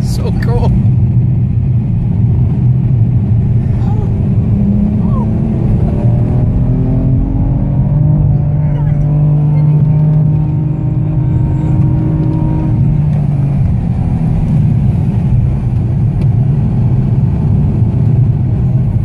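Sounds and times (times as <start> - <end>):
car engine under hard driving: 0.0 - 19.0
steady low rumble: 0.0 - 19.0.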